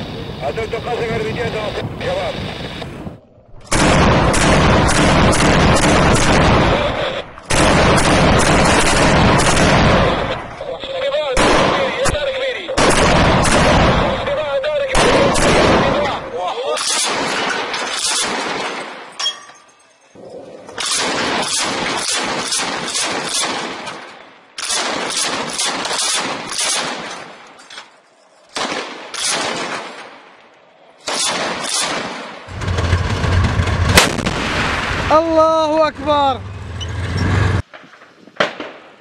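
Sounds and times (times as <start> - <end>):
machine gun firing bursts: 3.7 - 10.3, 12.8 - 14.3, 15.0 - 16.2, 20.8 - 23.9, 24.6 - 27.3, 28.6 - 30.0, 31.0 - 34.7
low engine rumble: 32.5 - 34.1.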